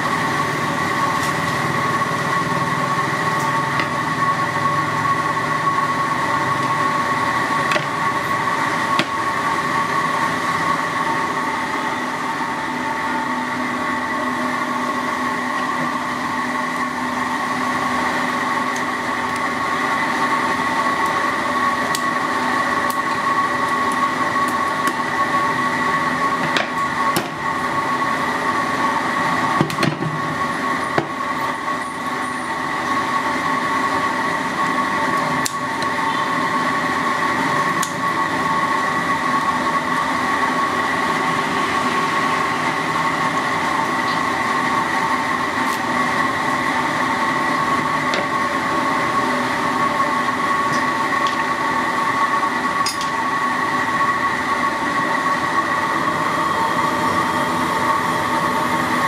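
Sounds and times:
mechanical drone with high whine: 0:00.0 - 0:59.0.

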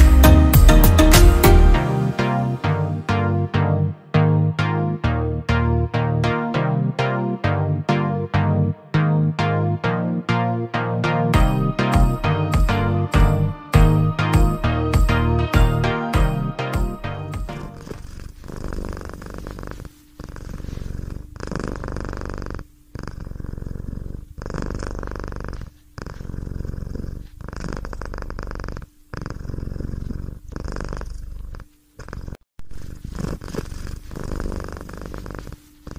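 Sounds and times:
cat purring: 0:17.5 - 0:35.9.

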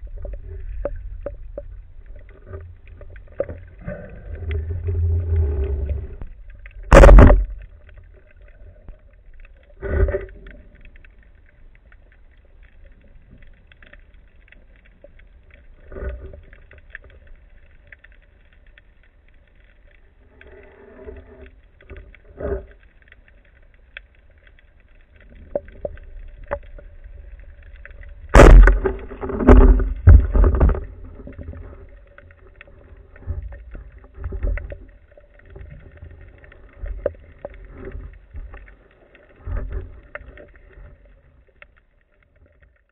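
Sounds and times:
underwater knocks and thumps: 0:00.0 - 0:08.3, 0:27.7 - 0:38.7
low watery rumble: 0:00.0 - 0:42.9.

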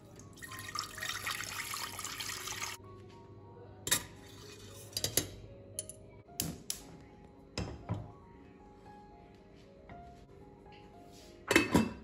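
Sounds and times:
tap water pouring into metal pot: 0:00.3 - 0:02.8.

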